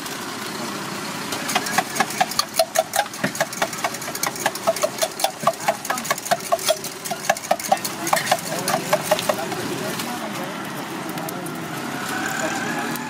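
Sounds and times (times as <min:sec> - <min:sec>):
metal spatula clanking on griddle: 0:01.5 - 0:09.6.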